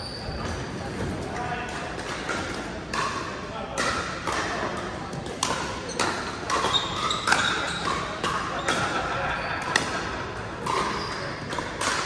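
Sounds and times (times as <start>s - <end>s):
shoe squeak: 0.0s - 0.8s, 6.6s - 7.8s, 10.8s - 11.4s
background chatter: 0.0s - 12.0s.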